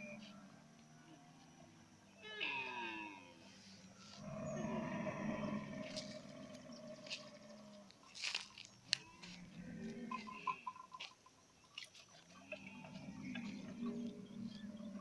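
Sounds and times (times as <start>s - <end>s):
low drawn-out animal call: 2.2s - 8.0s, 9.0s - 11.0s, 12.3s - 15.0s
camels chewing twigs: 5.8s - 14.9s.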